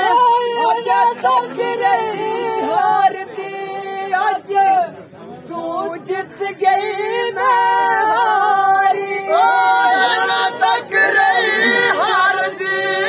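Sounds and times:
men singing folk song: 5.5s - 13.0s.

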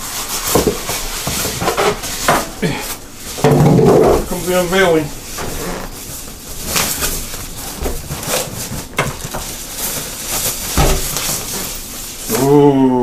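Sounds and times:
packaging bag rustling: 0.0s - 12.7s.

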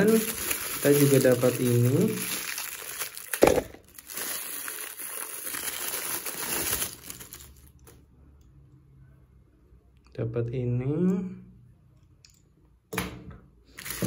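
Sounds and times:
plastic bag crinkling: 0.0s - 8.0s, 13.7s - 14.0s.

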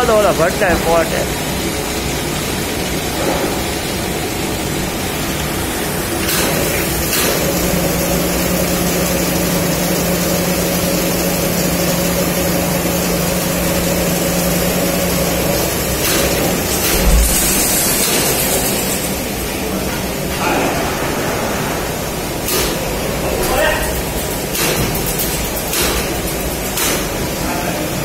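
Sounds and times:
furnace rushing noise: 13.0s - 27.2s
steady low hum: 14.8s - 23.4s.

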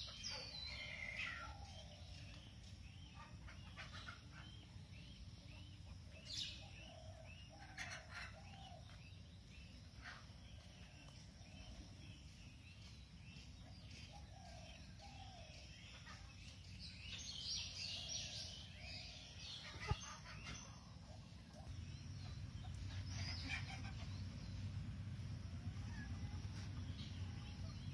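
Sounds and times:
birds chirping and calling: 0.0s - 27.9s
steady low background noise: 0.0s - 27.9s.

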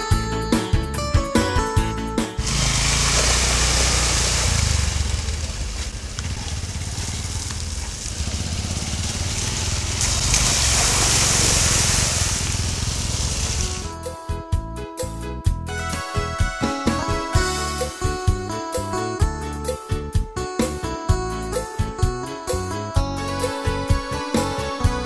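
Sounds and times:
water splashing from wheels: 2.4s - 13.9s
motorcycle engines rumbling: 2.4s - 14.0s
plucked string music: 13.8s - 25.0s.

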